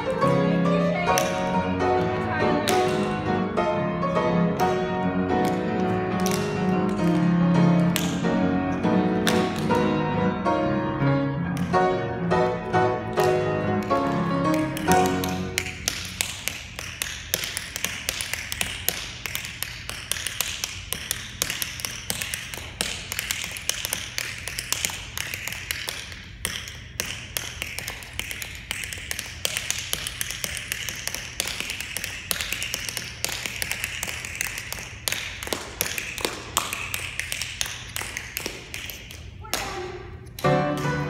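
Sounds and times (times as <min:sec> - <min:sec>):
tap shoes striking hard floor: 0:00.0 - 0:03.3, 0:04.6 - 0:10.0.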